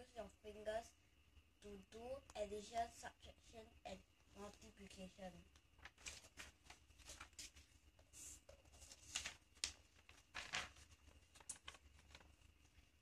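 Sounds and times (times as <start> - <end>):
paper rustling and crinkling: 5.8 - 12.9.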